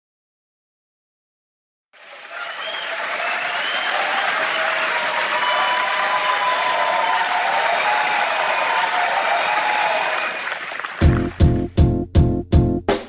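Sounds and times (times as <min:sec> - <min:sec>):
voices cheering: 0:02.0 - 0:11.5
crowd applauding: 0:02.0 - 0:11.8
whistles: 0:02.4 - 0:06.6.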